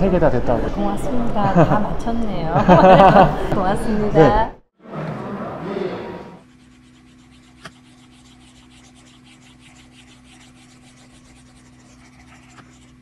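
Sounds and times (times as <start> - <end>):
pencil scribbling on paper: 6.4 - 13.0.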